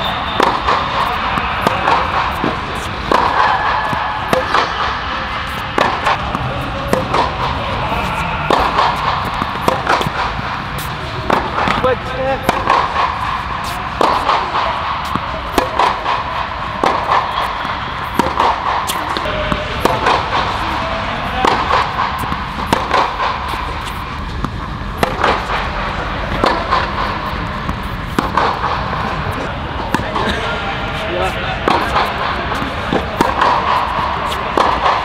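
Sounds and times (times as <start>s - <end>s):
ball bouncing on hard court: 0.0s - 30.5s, 31.6s - 35.0s
racquets striking tennis ball: 0.0s - 35.0s.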